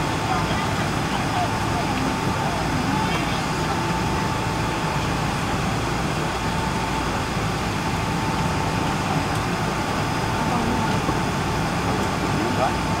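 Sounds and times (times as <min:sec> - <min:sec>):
jet engine whine: 0:00.0 - 0:13.0
jet engines rumbling: 0:00.0 - 0:13.0.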